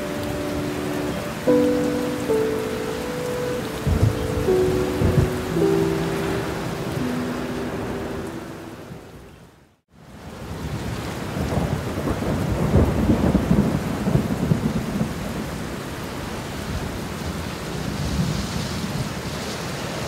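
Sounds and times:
churning floodwater: 0:00.0 - 0:09.1
heavy rain: 0:00.0 - 0:20.0.

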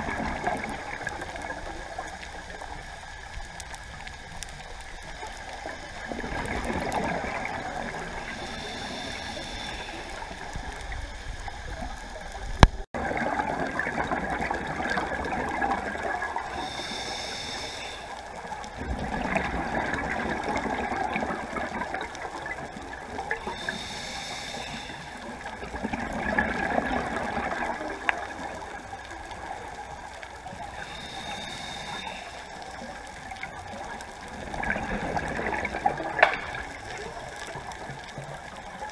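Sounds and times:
gurgling rush of bubbles: 0:00.0 - 0:17.1, 0:18.3 - 0:38.9
hissing regulator inhales: 0:08.1 - 0:10.5, 0:16.5 - 0:18.2, 0:23.4 - 0:25.3, 0:30.7 - 0:32.9.

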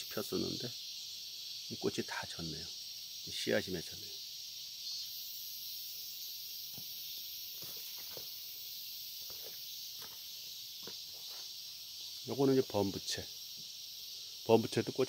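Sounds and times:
high-pitched insect chorus: 0:00.0 - 0:15.0
footsteps rustling through plants: 0:07.5 - 0:08.4, 0:09.2 - 0:11.8.

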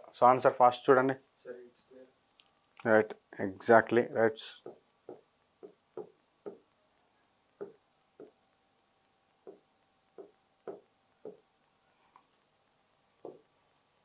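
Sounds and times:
pen tapping on whiteboard screen: 0:04.6 - 0:06.8, 0:07.6 - 0:08.4, 0:09.4 - 0:11.6, 0:13.2 - 0:13.5.

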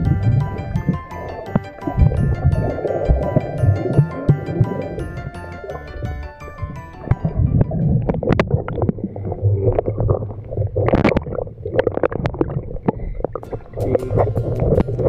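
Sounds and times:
water sloshing and gurgling: 0:07.0 - 0:15.0.

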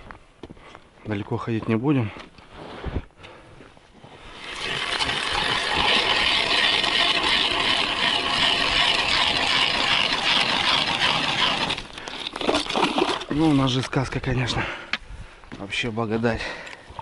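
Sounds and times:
ice auger grinding ice: 0:04.3 - 0:13.7.

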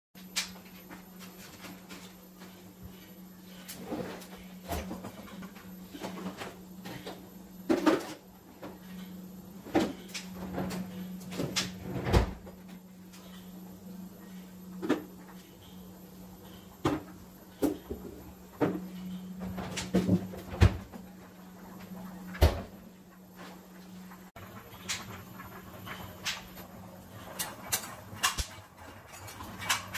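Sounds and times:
steady low hum: 0:00.2 - 0:29.9
refrigerator door and drawers clunking: 0:09.7 - 0:12.5.

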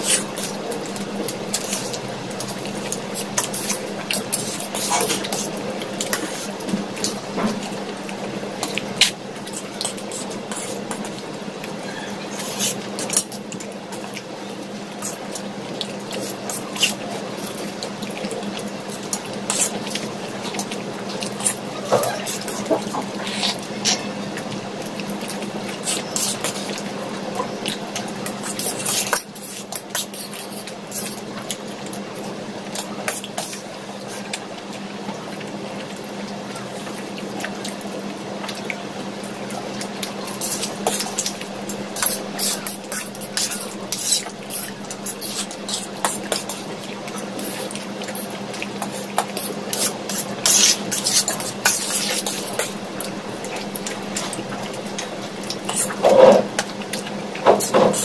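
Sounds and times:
chewing: 0:00.0 - 0:14.3, 0:15.0 - 0:58.0
slurping noodles: 0:40.0 - 0:56.6.

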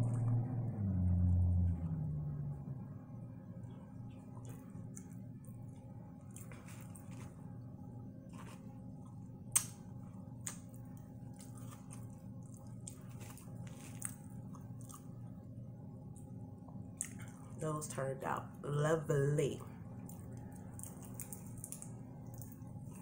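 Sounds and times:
steady low hum: 0:00.0 - 0:23.0
chewing with wet mouth sounds: 0:03.6 - 0:07.6, 0:08.3 - 0:15.4, 0:16.0 - 0:17.6, 0:19.9 - 0:23.0.

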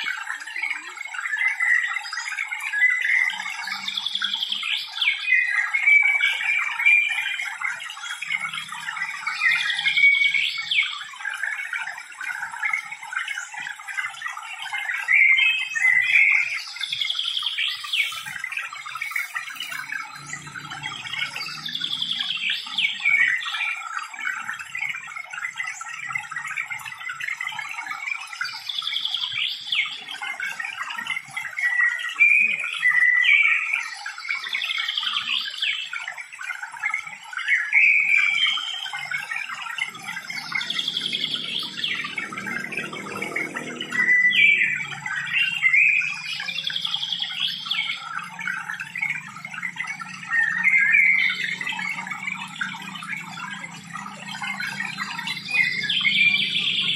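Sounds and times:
birds chirping chorus: 0:00.0 - 0:56.9.

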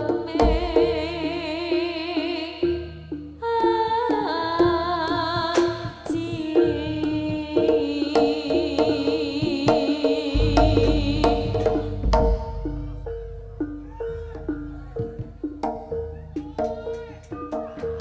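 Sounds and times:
heavy low drum beats: 0:00.0 - 0:01.4, 0:08.5 - 0:17.3
hand drums: 0:00.0 - 0:18.0
high wavering melody: 0:10.3 - 0:18.0.

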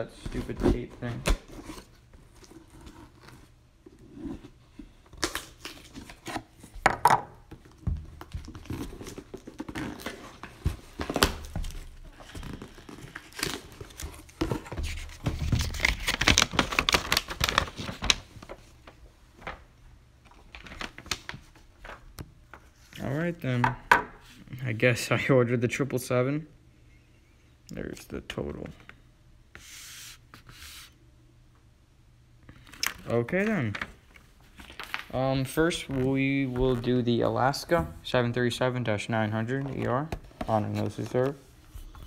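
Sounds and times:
paper tearing and crinkling: 0:12.6 - 0:18.6.

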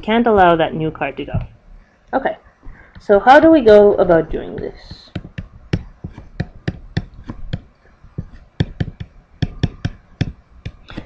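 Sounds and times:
stylus tapping on tablet screen: 0:02.6 - 0:11.0.

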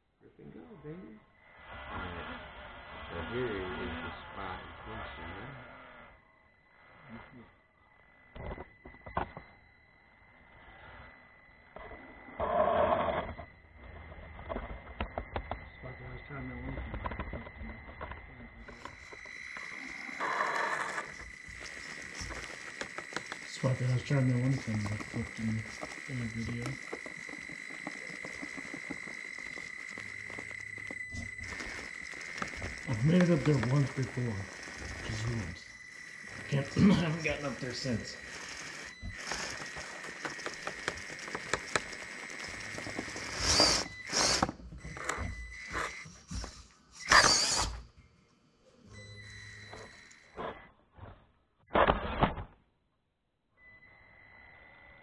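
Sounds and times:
electric motor and gears whining: 0:01.4 - 0:07.4, 0:10.3 - 0:48.1, 0:49.0 - 0:51.1
scattered clicks: 0:16.5 - 0:46.1
loud rasps: 0:18.8 - 0:41.4, 0:47.0 - 0:47.8.

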